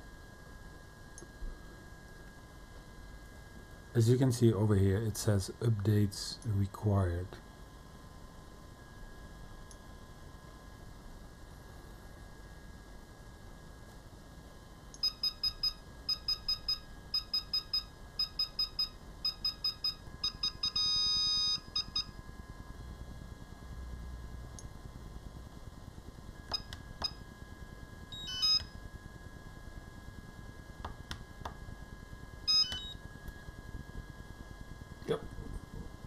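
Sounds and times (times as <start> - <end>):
remote controller high beeps: 15.0 - 22.1, 28.2 - 28.7, 32.5 - 33.0
long beep: 15.0 - 22.2, 28.1 - 28.8, 32.5 - 33.0.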